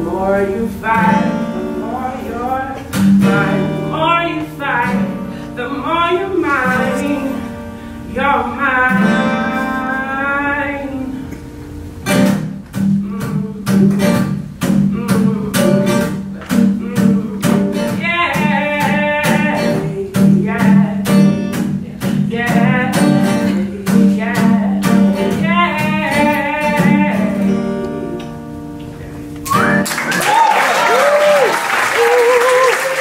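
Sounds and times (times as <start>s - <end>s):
person singing: 0.0s - 11.4s, 12.8s - 28.4s
acoustic guitar strumming: 0.0s - 30.2s
applause: 29.5s - 33.0s.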